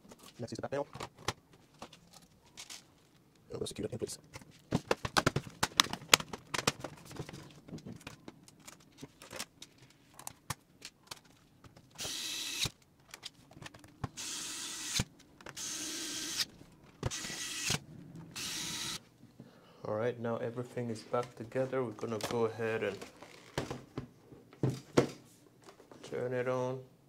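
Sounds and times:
electric screwdriver whining: 12.0s - 12.7s, 14.2s - 19.0s.

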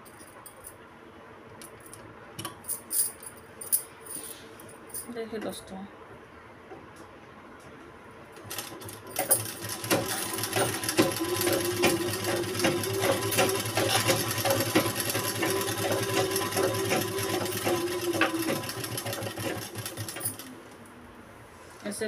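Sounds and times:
sewing machine stitching: 8.4s - 20.5s.

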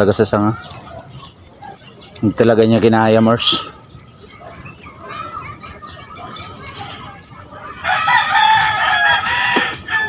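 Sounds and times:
rooster crowing: 7.6s - 10.0s.

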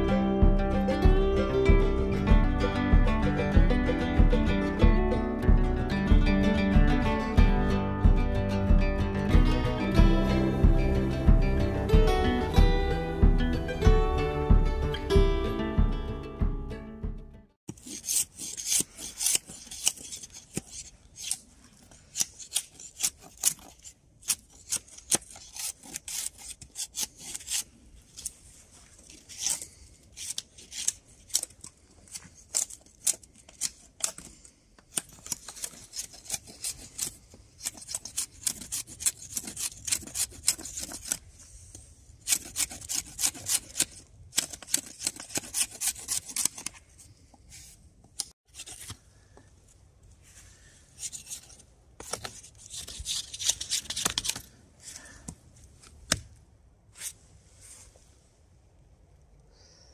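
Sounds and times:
blade scraping bark off branch: 17.7s - 46.9s, 51.0s - 55.1s.

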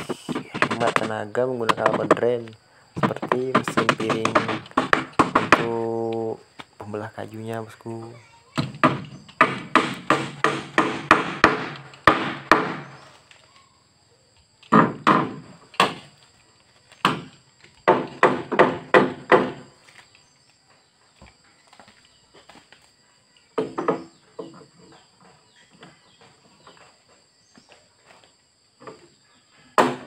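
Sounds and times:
hammer striking wooden plank: 0.0s - 2.3s, 3.0s - 5.9s, 8.6s - 13.0s, 14.7s - 16.0s, 17.0s - 19.6s, 29.8s - 30.0s.

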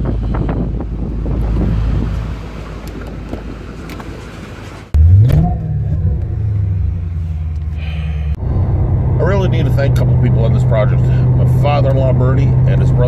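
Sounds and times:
wind noise on microphone: 0.0s - 7.1s
car engine revving: 4.9s - 13.0s
car engine running: 4.9s - 13.0s.

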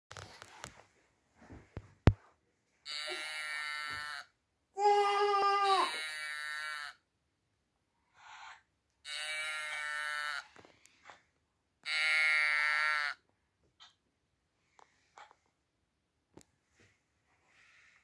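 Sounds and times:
toy speaker oo-aah sound: 5.6s - 7.0s.

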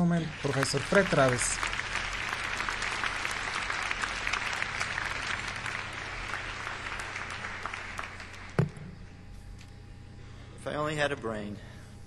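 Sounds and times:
audience applauding: 0.0s - 8.6s
thump: 8.6s - 8.9s.

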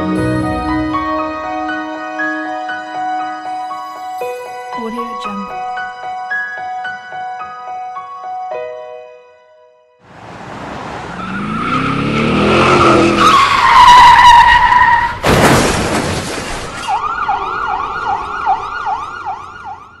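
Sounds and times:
car tyres screeching: 10.1s - 16.8s
car crash: 10.1s - 19.2s
emergency siren yelping: 16.9s - 20.0s.

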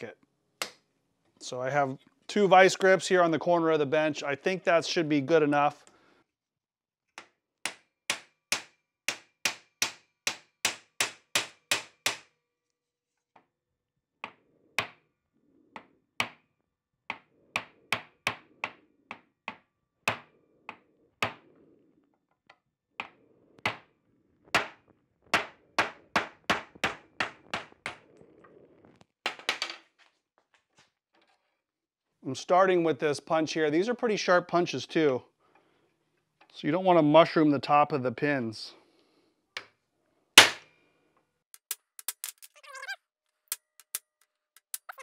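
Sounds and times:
hammer striking metal punch: 40.4s - 40.6s.

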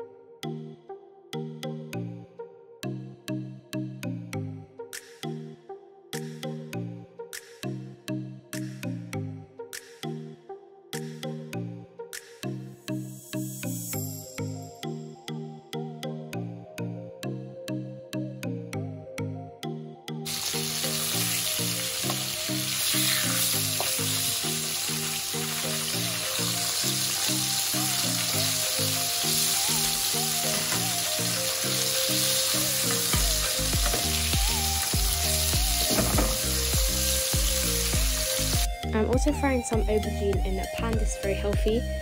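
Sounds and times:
fish sizzling in oil: 20.3s - 38.7s.

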